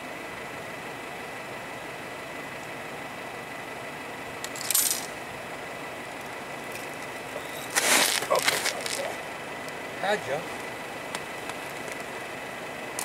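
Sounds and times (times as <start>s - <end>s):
fishing rod and reel rustling: 6.7s - 9.2s.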